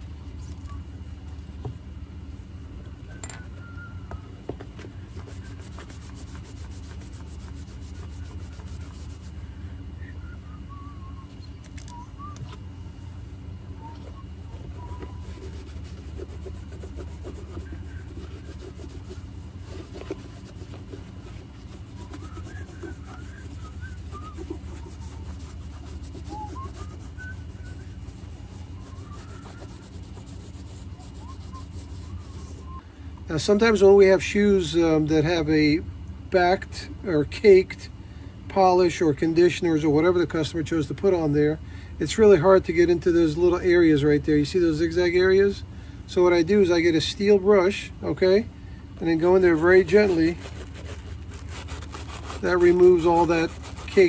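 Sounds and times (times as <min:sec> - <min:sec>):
steady low hum: 0:00.0 - 0:54.0
hand rubbing leather shoe: 0:04.6 - 0:09.4, 0:13.8 - 0:32.8, 0:49.0 - 0:54.0.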